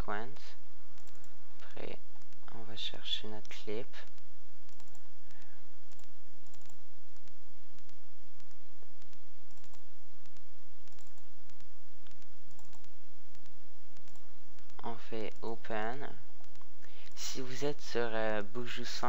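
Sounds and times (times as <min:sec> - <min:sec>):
steady low hum: 0:00.0 - 0:19.0
computer mouse clicking: 0:01.0 - 0:02.5, 0:03.4 - 0:15.5.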